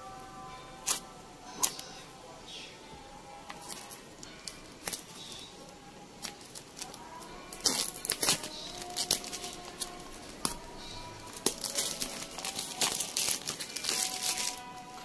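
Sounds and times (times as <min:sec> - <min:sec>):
plastic wrap crinkling: 0:06.2 - 0:15.0.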